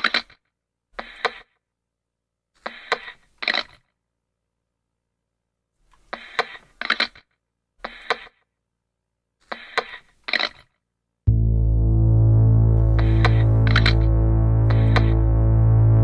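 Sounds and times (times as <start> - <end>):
synthesizer music with deep bass: 11.3 - 16.0.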